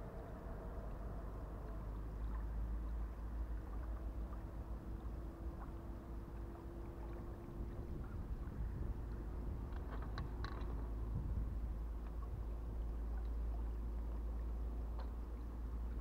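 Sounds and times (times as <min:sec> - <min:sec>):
faint steady hum: 0:00.0 - 0:16.0
wind rumbling on microphone: 0:00.0 - 0:16.0
light ticks: 0:14.8 - 0:16.0.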